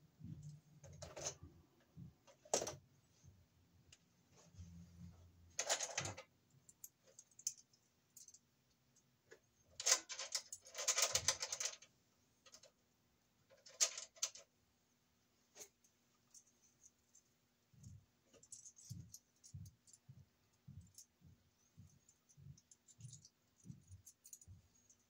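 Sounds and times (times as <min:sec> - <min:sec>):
metallic clicking and rattling: 0:05.6 - 0:08.4, 0:09.7 - 0:12.8, 0:13.5 - 0:14.5, 0:16.3 - 0:20.0, 0:22.0 - 0:25.0.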